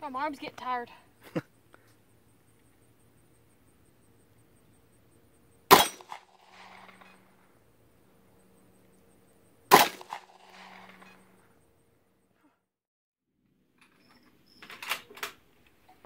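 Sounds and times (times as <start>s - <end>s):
handgun shots: 5.7s - 7.0s, 9.7s - 11.0s
gunshot echo: 5.7s - 7.2s, 9.7s - 11.1s.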